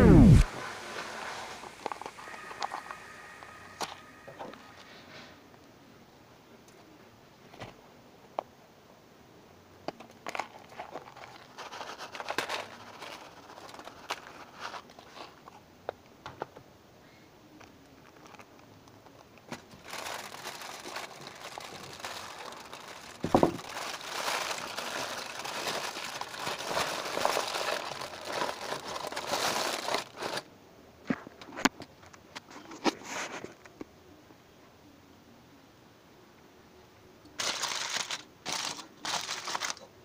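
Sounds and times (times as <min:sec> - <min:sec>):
aluminium foil crumpling: 0:00.4 - 0:05.1, 0:10.2 - 0:15.6, 0:18.0 - 0:30.5, 0:37.4 - 0:39.9
plastic snack packet crinkling: 0:01.7 - 0:04.9, 0:10.0 - 0:15.6, 0:18.0 - 0:30.5, 0:37.4 - 0:39.9
thump: 0:23.2 - 0:23.6.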